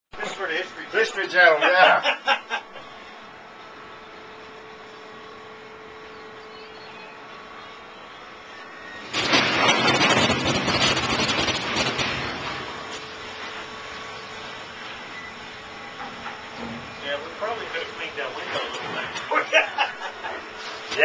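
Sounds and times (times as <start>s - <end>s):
machinery hum with whine: 0.2s - 21.0s
coal pouring into hopper car: 8.9s - 13.8s.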